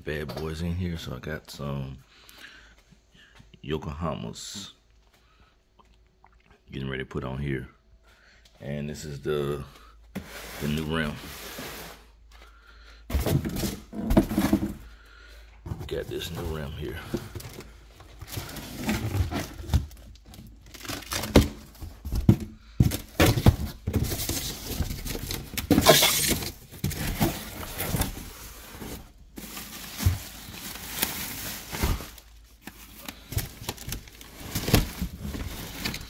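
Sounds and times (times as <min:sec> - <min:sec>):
cardboard tearing: 0:24.5 - 0:28.3.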